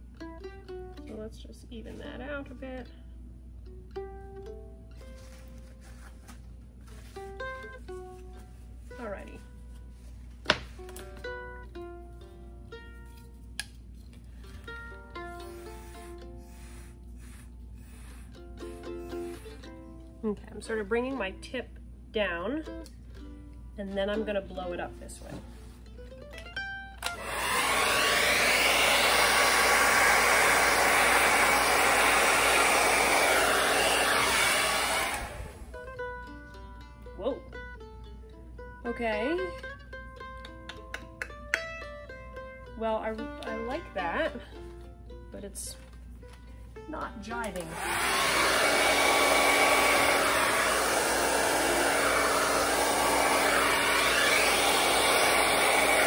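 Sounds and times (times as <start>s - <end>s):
hair dryer blowing: 27.0s - 35.8s, 47.6s - 56.0s.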